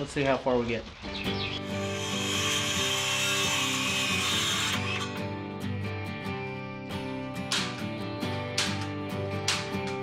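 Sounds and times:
background music: 0.0s - 10.0s
circular saw cutting wood: 1.6s - 5.2s.

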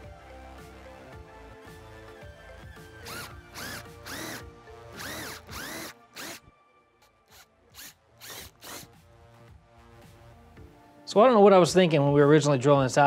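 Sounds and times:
cordless drill whining: 3.0s - 6.5s, 7.2s - 8.9s.

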